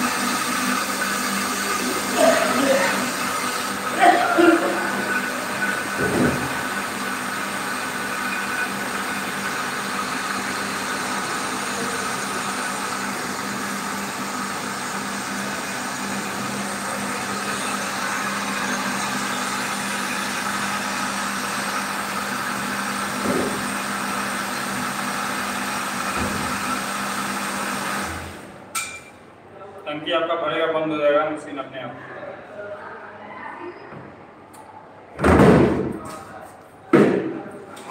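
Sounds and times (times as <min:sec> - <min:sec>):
pump motor humming: 0:00.0 - 0:28.6.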